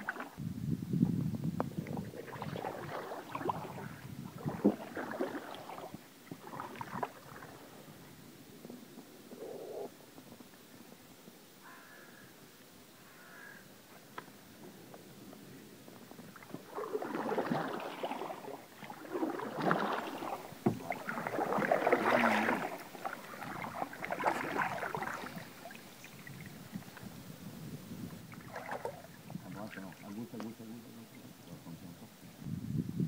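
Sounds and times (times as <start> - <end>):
paddle splashing in water: 0.0 - 0.4, 1.8 - 7.9, 16.1 - 30.7.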